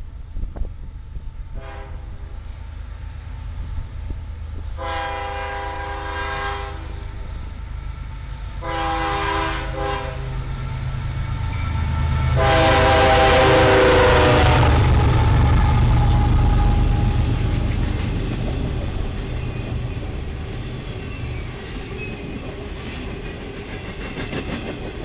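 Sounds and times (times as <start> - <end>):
diesel locomotive engines: 0.0 - 25.0
rumble of train wheels: 0.0 - 25.0
locomotive air horn blasts: 1.6 - 2.4, 4.7 - 7.1, 8.6 - 10.5, 11.2 - 17.4.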